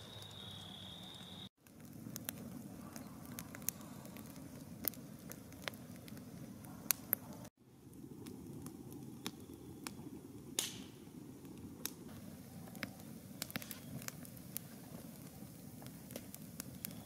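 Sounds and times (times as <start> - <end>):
campfire crackling: 0.0 - 17.0.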